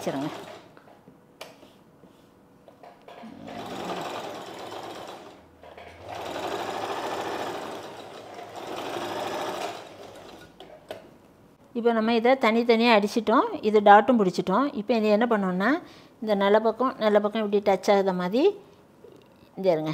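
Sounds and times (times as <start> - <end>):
sewing machine stitching: 3.2 - 10.6.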